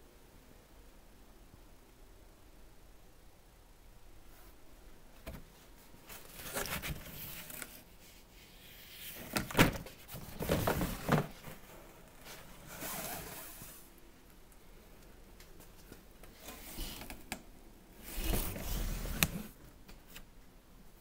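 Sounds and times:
air filters scraping and rustling: 5.2 - 13.9, 18.0 - 19.6.

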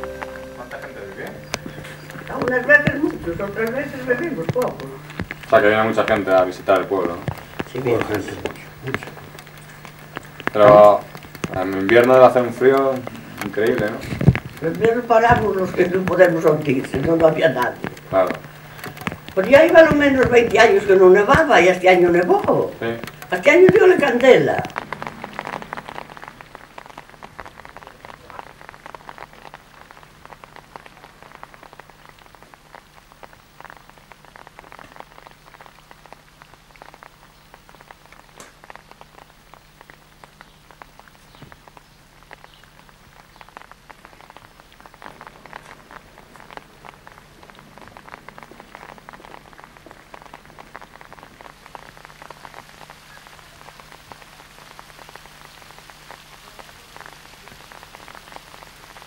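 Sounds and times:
low steady hum: 0.0 - 28.0
steady rain falling: 0.0 - 59.0.

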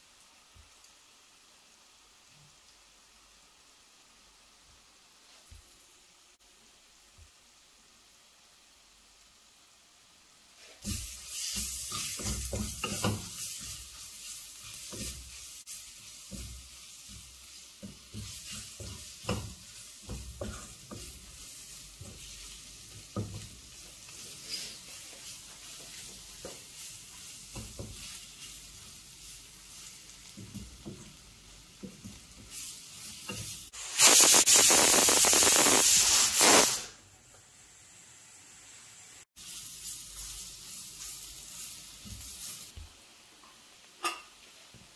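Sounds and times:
onions sizzling in oil: 0.0 - 44.9
spatula scraping a pan: 10.6 - 31.0
pressure cooker hissing steam: 32.4 - 37.0.

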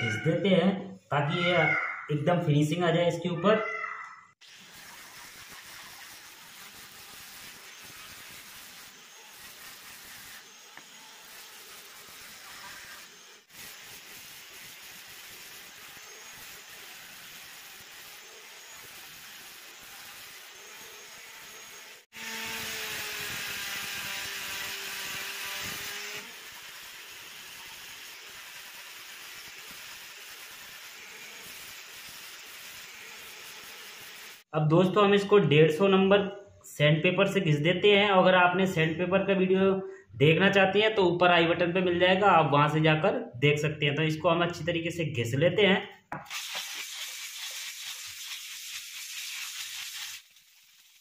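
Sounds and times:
sandpaper rubbing on wood: 4.4 - 21.1, 46.2 - 51.0
angle grinder sanding wood: 4.4 - 34.5.

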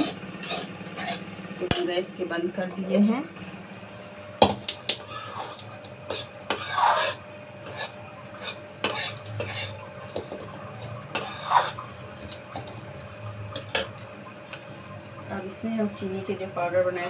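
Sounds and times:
spatula scraping a metal pan: 0.0 - 1.3, 4.9 - 11.8.

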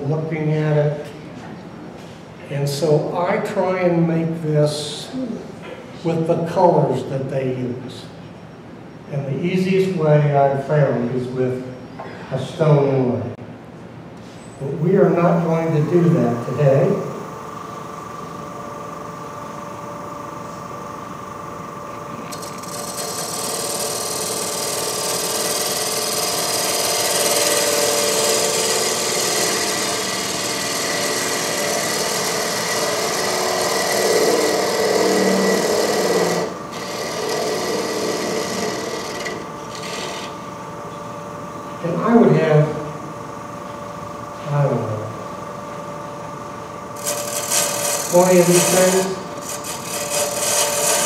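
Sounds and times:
wood lathe humming: 14.9 - 43.0, 46.8 - 51.0
lathe tool scraping wood: 22.3 - 40.4, 47.0 - 51.0.

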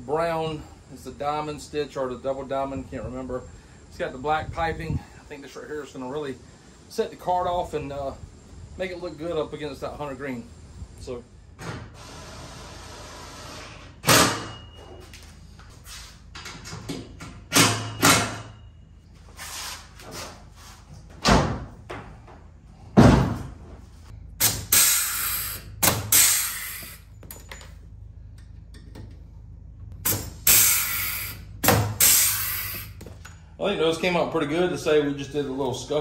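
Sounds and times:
pneumatic tool driving bolts: 11.6 - 14.6, 17.5 - 18.6, 24.4 - 27.1, 30.0 - 33.1.

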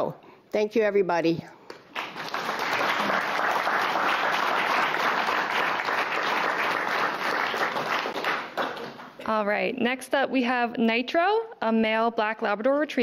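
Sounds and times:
audience applauding: 1.9 - 9.2.

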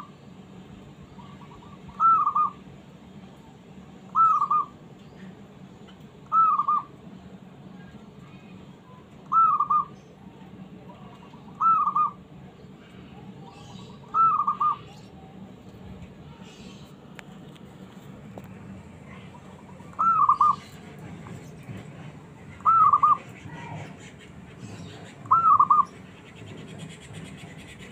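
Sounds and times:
dove cooing: 1.2 - 2.6, 4.2 - 4.7, 13.8 - 14.9, 19.1 - 20.7, 22.6 - 23.8, 25.2 - 25.9.

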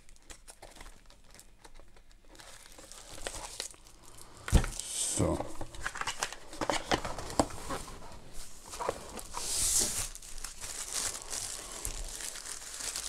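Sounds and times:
plastic bag crinkling: 0.0 - 4.9, 8.4 - 13.0.

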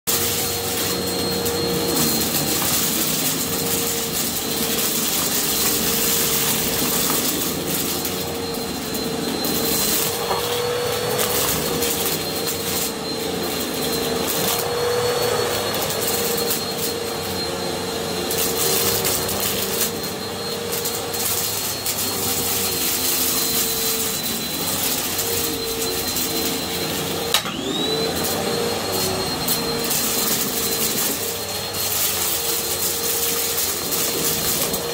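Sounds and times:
vacuum cleaner whine: 0.0 - 34.9.

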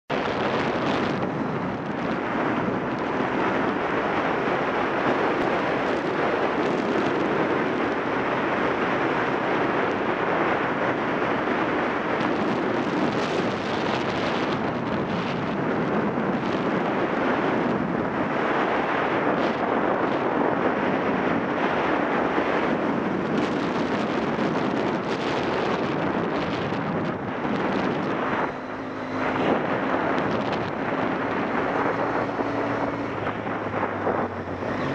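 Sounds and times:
wind rushing on microphone: 0.1 - 34.9
motorcycle engine running: 21.0 - 34.9.

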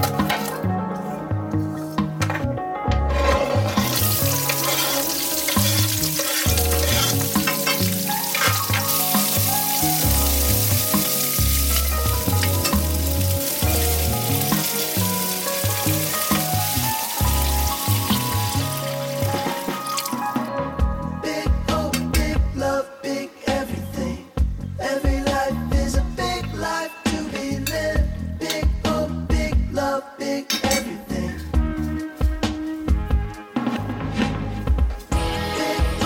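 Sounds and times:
background music with bass line: 0.0 - 22.9, 23.5 - 30.0, 30.7 - 36.0
food sizzling in hot oil: 3.6 - 20.5.

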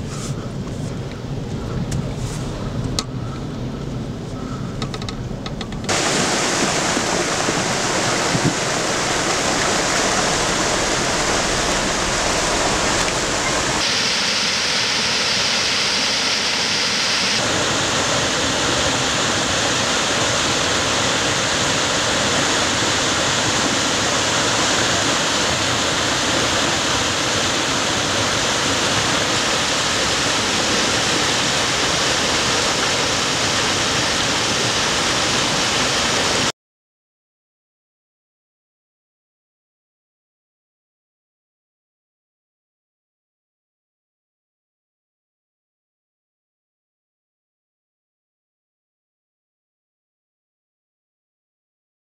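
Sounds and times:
debris flow roaring: 5.9 - 36.5.

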